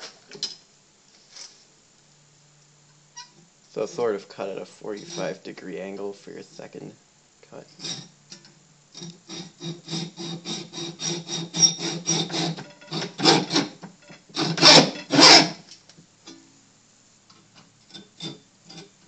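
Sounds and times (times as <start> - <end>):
hacksaw cutting metal: 5.0 - 5.4, 7.8 - 8.1, 9.0 - 15.6, 17.9 - 19.0.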